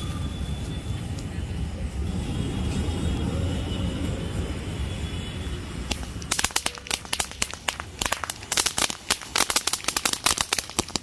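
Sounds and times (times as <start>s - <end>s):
firework fountain crackling pops: 5.8s - 11.0s.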